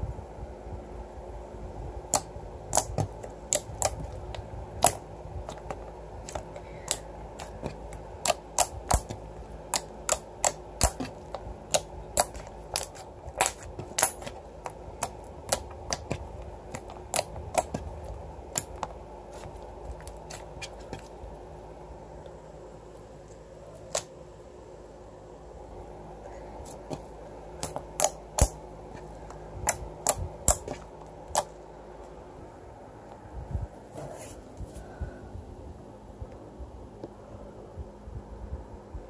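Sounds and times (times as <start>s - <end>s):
slime clicking and popping: 2.1s - 17.9s, 18.5s - 18.9s.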